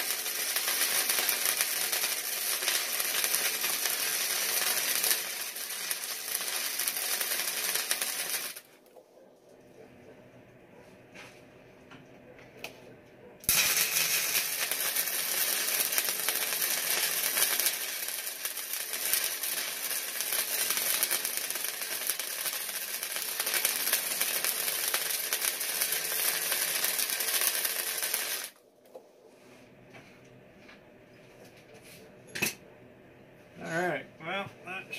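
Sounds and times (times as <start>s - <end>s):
arc welder crackling: 0.0s - 8.9s, 13.4s - 29.0s.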